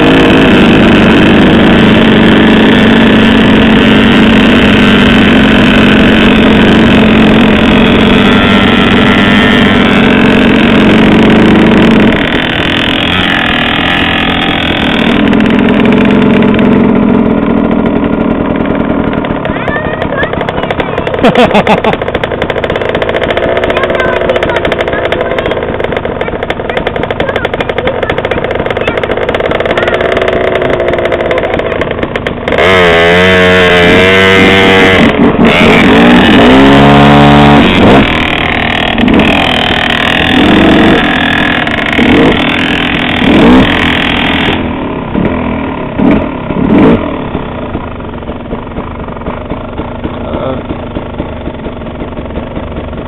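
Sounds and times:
dirt bike engine revving: 0.0 - 53.0.

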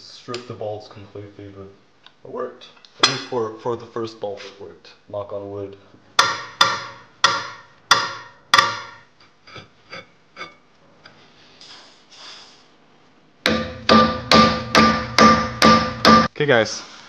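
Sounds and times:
fast rhythmic knocks: 6.2 - 9.0, 13.4 - 16.3
sharp ringing knocks: 6.2 - 9.1, 13.4 - 16.3.

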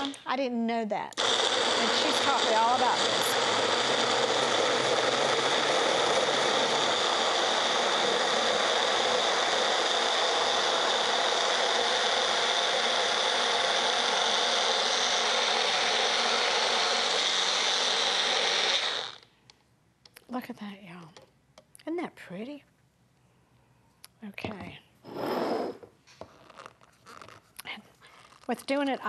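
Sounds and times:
blender motor whining: 1.2 - 19.3.

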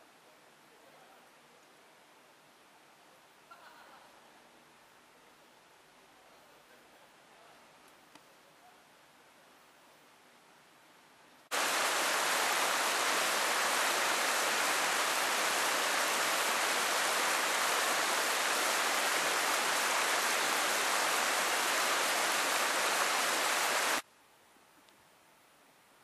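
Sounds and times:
shallow river babbling: 11.5 - 24.0.

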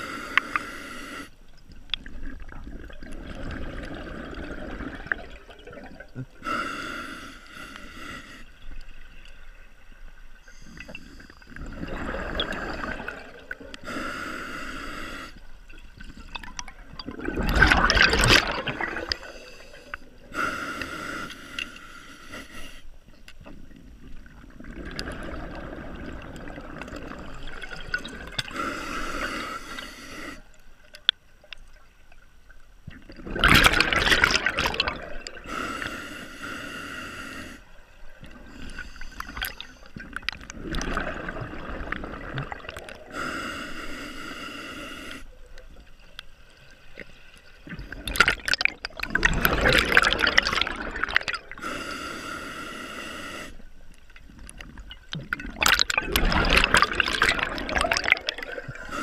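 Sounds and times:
breathing through a regulator: 0.0 - 1.4, 6.3 - 8.8, 10.4 - 11.7, 12.4 - 16.7, 18.4 - 23.0, 27.5 - 30.6, 34.2 - 40.2, 42.5 - 45.4, 49.5 - 53.9, 56.5 - 59.0
gushes of exhaled bubbles: 2.0 - 6.4, 11.4 - 13.8, 15.7 - 19.7, 24.0 - 28.6, 32.9 - 35.5, 38.2 - 43.1, 47.6 - 51.6, 54.2 - 59.0.

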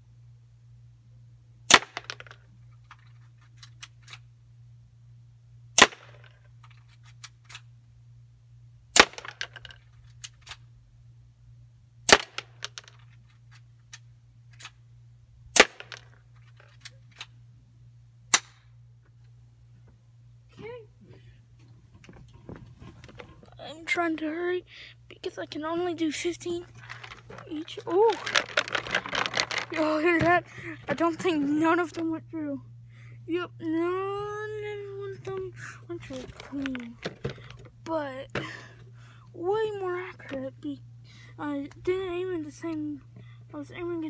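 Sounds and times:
bb pistol shots: 1.7 - 2.1, 5.8 - 6.2, 9.0 - 9.4, 12.1 - 12.6, 15.6 - 16.0, 18.3 - 18.6.

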